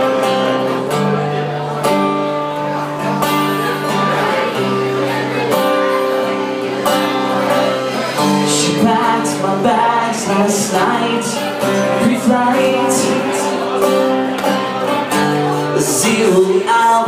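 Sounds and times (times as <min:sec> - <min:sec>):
strummed guitar: 0:00.0 - 0:17.0
man singing: 0:07.4 - 0:17.0.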